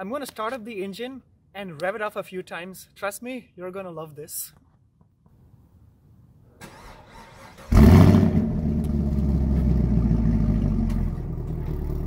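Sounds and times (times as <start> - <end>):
car engine idling: 7.7 - 12.0.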